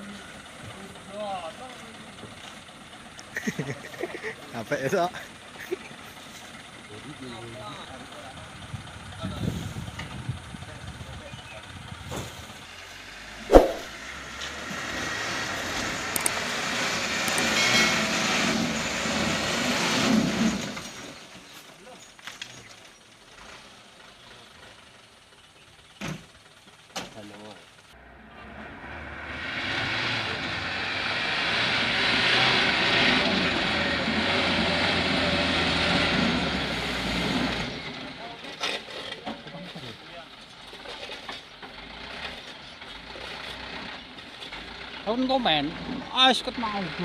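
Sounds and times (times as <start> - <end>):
diesel truck engine under load: 0.0 - 47.0
truck diesel engine revving hard: 12.0 - 21.1, 28.0 - 38.2
sharp knock: 13.5 - 13.9.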